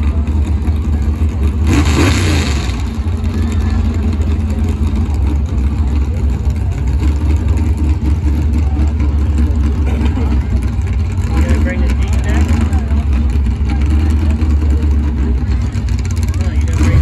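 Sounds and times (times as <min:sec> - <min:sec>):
engine rev: 0:00.0 - 0:17.0
vehicle engine running: 0:00.0 - 0:17.0.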